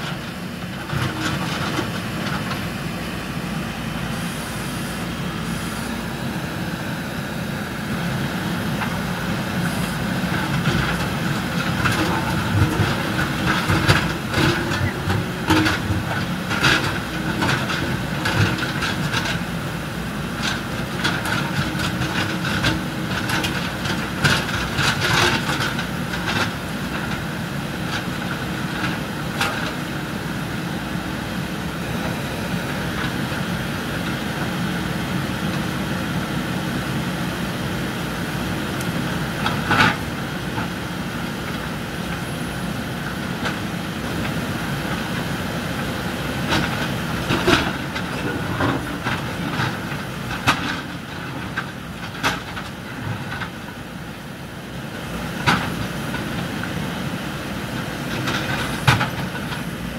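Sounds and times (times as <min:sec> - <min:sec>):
clanks of concrete and rubble: 0:00.0 - 0:02.8, 0:09.6 - 0:30.2, 0:38.8 - 0:42.4, 0:43.0 - 0:53.8, 0:57.6 - 0:59.9
diesel engines running: 0:00.0 - 0:59.9.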